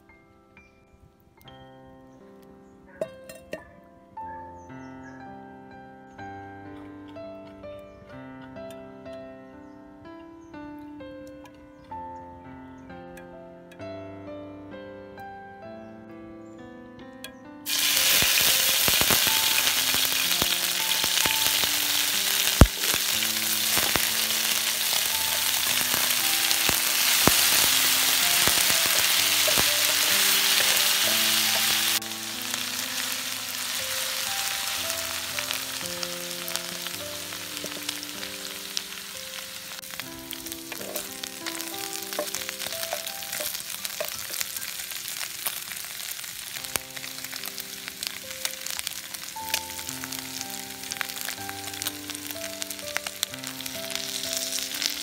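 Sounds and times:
soft piano music: 0.0 - 55.0
food sizzling in hot oil: 17.7 - 55.0.

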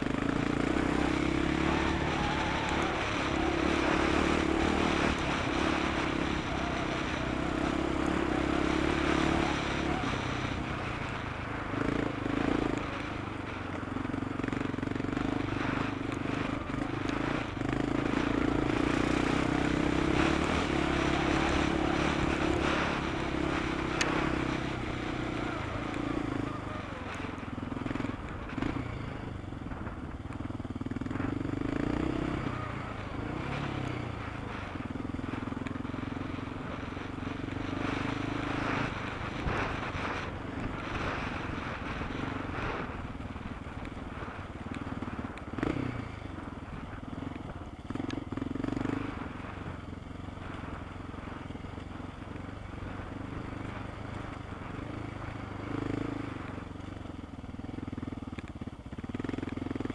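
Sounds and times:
motorcycle engine revving: 0.0 - 59.9.

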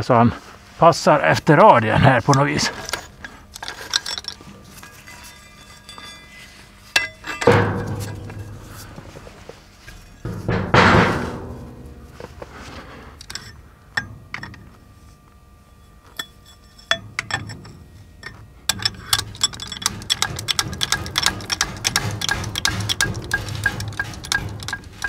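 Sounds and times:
steel bracket knocking and scraping: 2.2 - 15.2, 15.8 - 25.0
metal clinks: 2.7 - 8.9, 16.0 - 21.6.

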